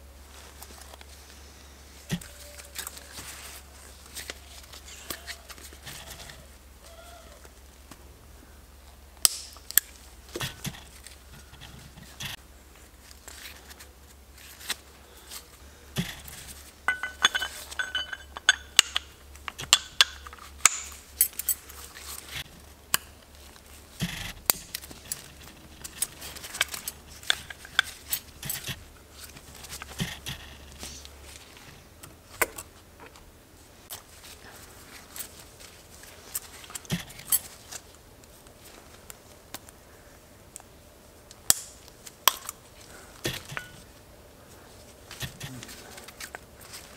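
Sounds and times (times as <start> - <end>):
metal engine parts clinking: 16.9 - 21.8.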